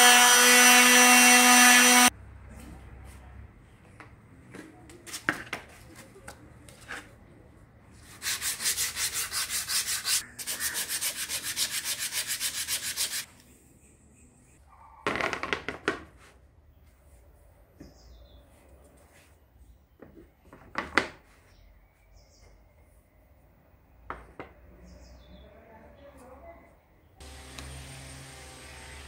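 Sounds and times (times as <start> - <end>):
sanding block scraping wood: 8.0 - 13.3, 27.2 - 29.0.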